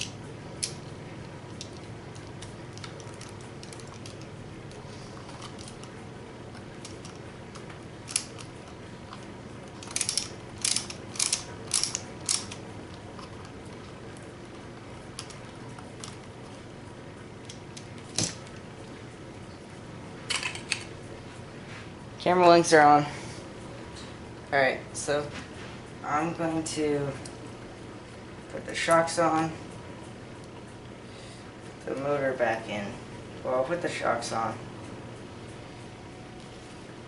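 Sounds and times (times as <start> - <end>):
small plastic parts clicking: 6.8 - 8.5, 9.1 - 13.5.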